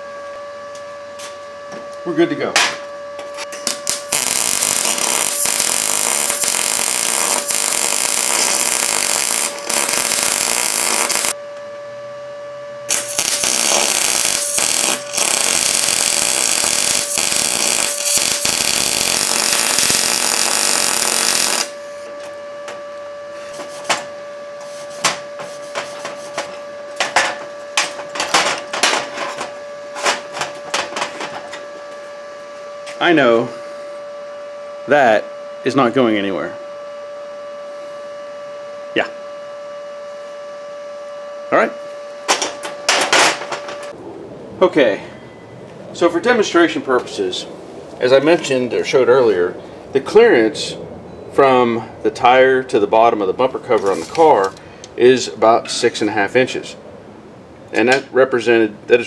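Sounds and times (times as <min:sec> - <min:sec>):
steady hum: 0:00.0 - 0:59.0
arc welding crackle: 0:03.5 - 0:11.4, 0:12.9 - 0:21.8.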